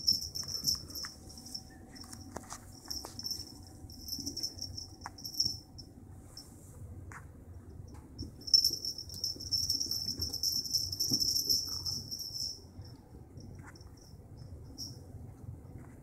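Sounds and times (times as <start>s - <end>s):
small bell jingling: 0.0s - 6.5s, 8.2s - 15.1s.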